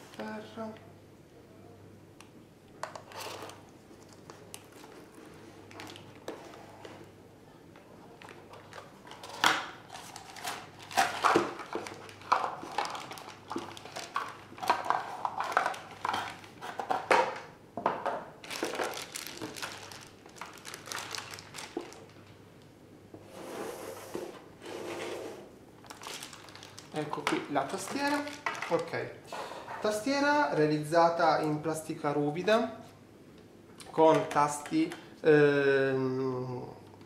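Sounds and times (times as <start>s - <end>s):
plastic wrap crinkling: 3.9s - 6.3s, 8.1s - 17.0s, 18.4s - 22.4s, 25.8s - 29.1s.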